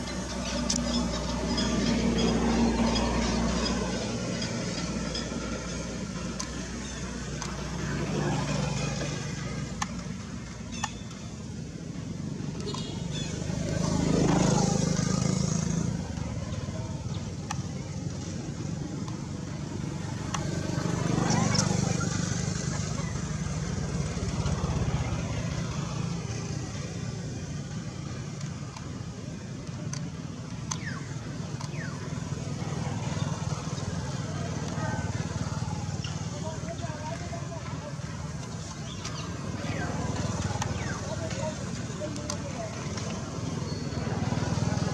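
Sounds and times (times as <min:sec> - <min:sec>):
vehicle engine humming: 0:00.0 - 0:44.9
sharp clicks: 0:28.3 - 0:32.2.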